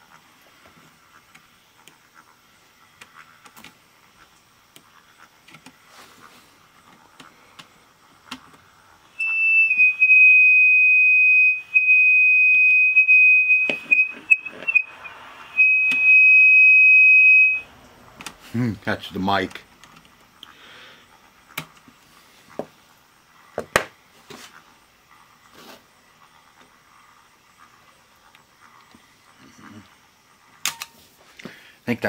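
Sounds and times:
high-pitched speaker feedback squeal: 0:09.1 - 0:17.7.

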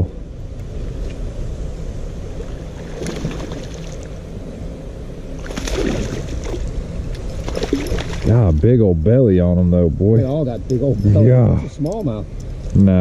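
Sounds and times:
steady low rumble: 0:00.0 - 0:13.0
fish splashing at water surface: 0:02.8 - 0:04.1, 0:05.4 - 0:06.6, 0:07.4 - 0:08.3.

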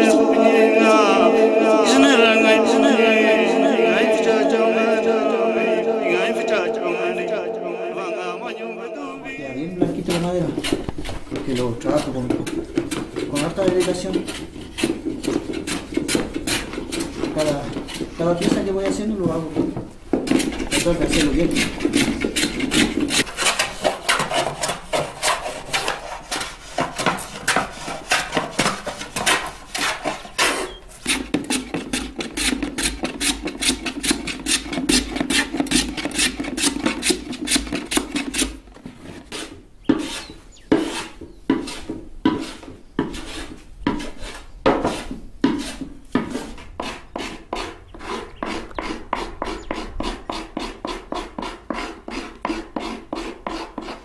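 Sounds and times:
hand plane scraping wood: 0:09.7 - 0:54.0.

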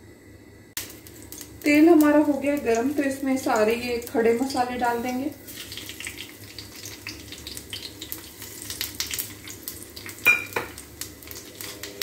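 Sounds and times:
spices sizzling in hot oil: 0:00.8 - 0:12.0.

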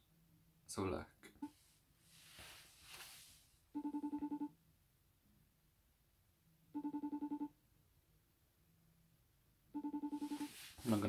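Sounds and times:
faint rustle: 0:01.6 - 0:03.6, 0:10.2 - 0:11.0
video call ringing: 0:03.7 - 0:04.5, 0:06.7 - 0:07.6, 0:09.7 - 0:11.0.

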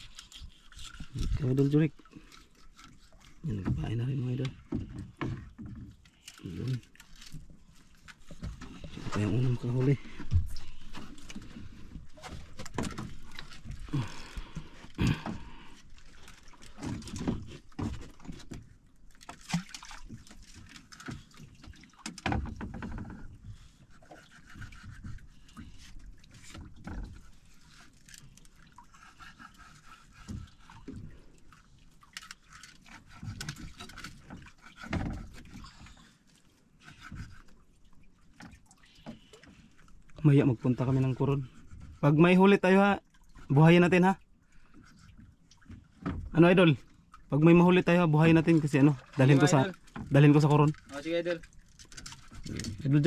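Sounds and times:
water lapping: 0:00.0 - 0:53.0.

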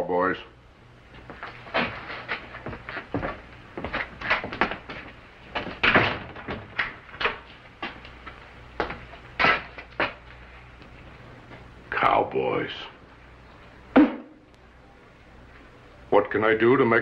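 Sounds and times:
footsteps: 0:01.1 - 0:11.8
door opening and closing: 0:05.5 - 0:07.5.

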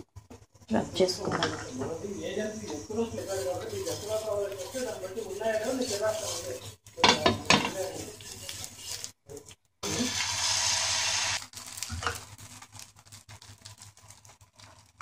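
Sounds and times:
batter sizzling on a hot pan: 0:00.0 - 0:15.0
knocks and rubbing on a pan: 0:02.6 - 0:09.2.

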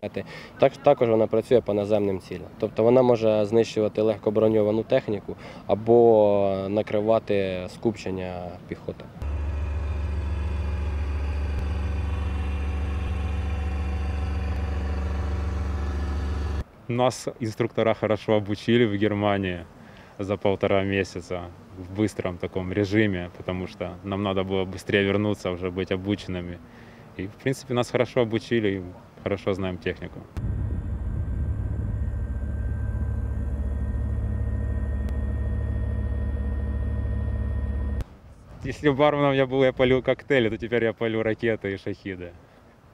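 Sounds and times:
diesel engine idling: 0:09.2 - 0:16.6, 0:30.4 - 0:38.0
faint high whine: 0:09.2 - 0:16.6, 0:30.4 - 0:38.0.

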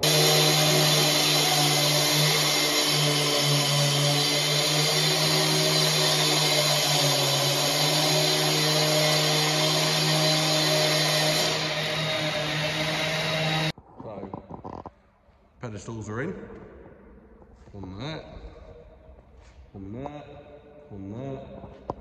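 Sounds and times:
disc cutter cutting concrete: 0:00.0 - 0:13.7.

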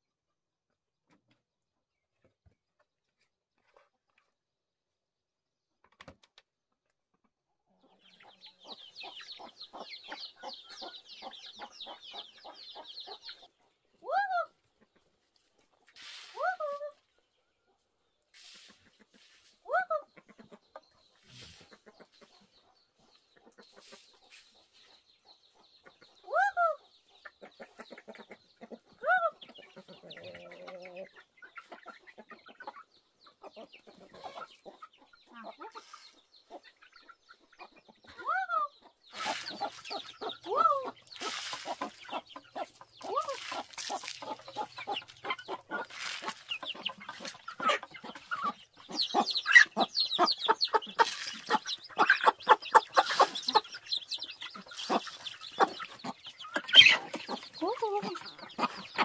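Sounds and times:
hens clucking: 0:07.2 - 0:59.0
hen arching calls: 0:37.6 - 0:59.0
beaks pecking grain: 0:39.1 - 0:59.0.

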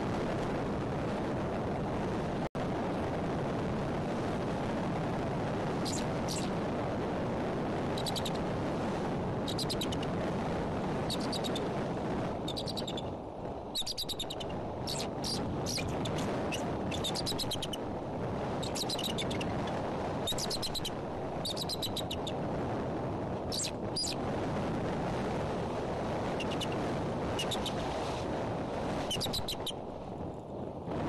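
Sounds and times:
wind rushing on microphone: 0:00.0 - 0:31.0
eagle chittering calls: 0:05.9 - 0:06.5, 0:08.0 - 0:08.4, 0:09.5 - 0:10.1, 0:11.1 - 0:11.6, 0:12.5 - 0:13.1, 0:13.8 - 0:17.8, 0:18.6 - 0:19.5, 0:20.3 - 0:22.4, 0:23.5 - 0:24.2, 0:26.4 - 0:26.8, 0:27.4 - 0:27.8, 0:29.1 - 0:29.7.

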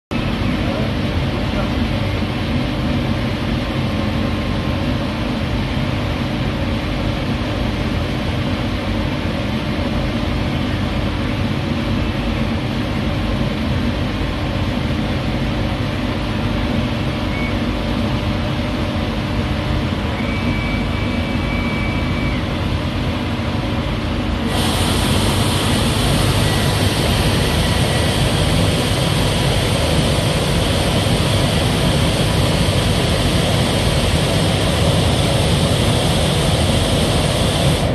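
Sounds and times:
laser cutter machine hum: 0:00.1 - 0:37.9
bright hiss: 0:24.5 - 0:37.9.

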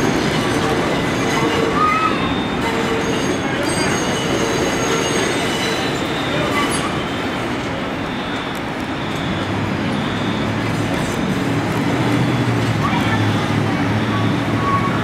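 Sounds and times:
high wheel squeal: 0:00.0 - 0:11.2
subway train rumbling on rails: 0:00.0 - 0:15.0.

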